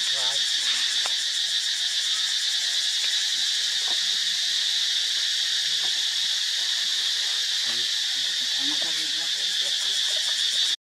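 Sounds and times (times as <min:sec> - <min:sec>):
insects droning in chorus: 0:00.0 - 0:10.8.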